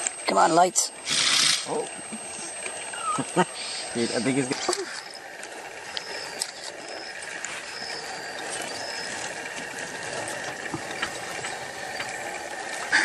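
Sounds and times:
steady background hum: 0.0s - 13.0s
porcupine rattling quills: 2.7s - 13.0s.

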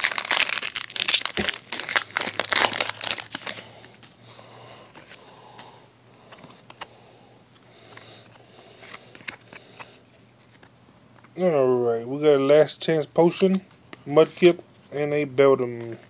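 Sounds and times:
foil pack crinkling: 0.0s - 4.2s
trading cards shuffling: 0.0s - 4.2s, 7.5s - 11.4s.

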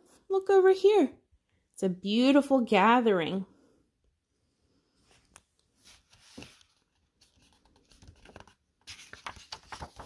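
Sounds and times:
book page turning: 5.1s - 10.0s.

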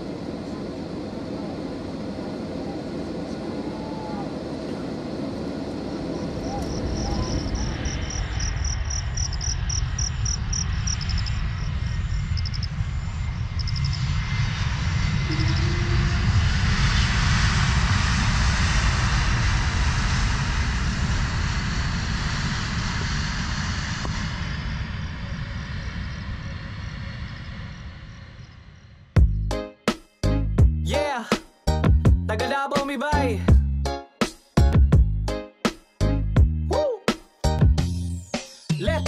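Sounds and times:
jet engines roaring: 0.0s - 29.2s.

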